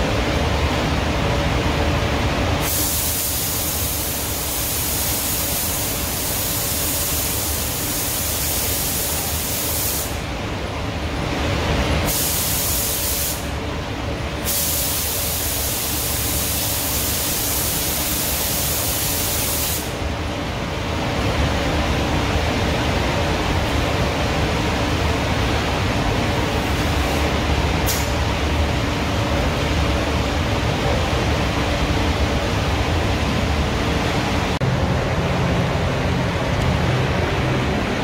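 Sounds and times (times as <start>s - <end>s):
ventilation rumble: 0.0s - 38.0s
paint spray gun hissing: 2.6s - 10.2s, 12.1s - 13.4s, 14.5s - 20.0s.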